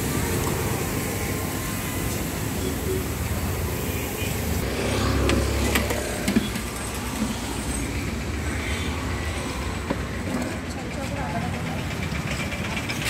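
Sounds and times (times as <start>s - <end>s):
road traffic rumbling: 0.0s - 13.0s
vehicle passing: 4.6s - 6.3s.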